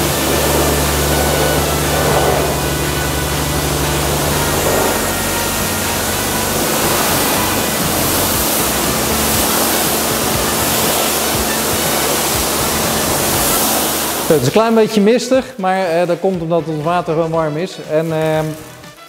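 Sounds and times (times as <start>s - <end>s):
pressure washer spraying: 0.0s - 19.0s.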